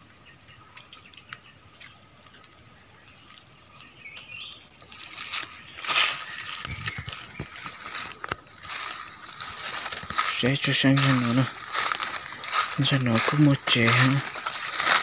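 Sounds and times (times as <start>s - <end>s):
footsteps rustling through dry leaves: 4.0s - 15.0s.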